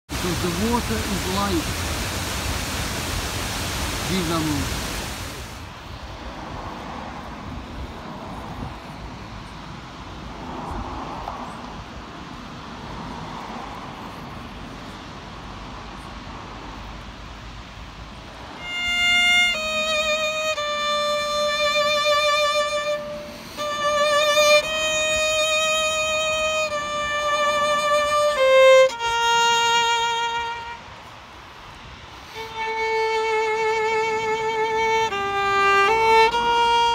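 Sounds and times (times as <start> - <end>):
violin playing long notes: 0.1 - 5.7, 18.5 - 36.9
rushing outdoor noise: 0.1 - 36.9.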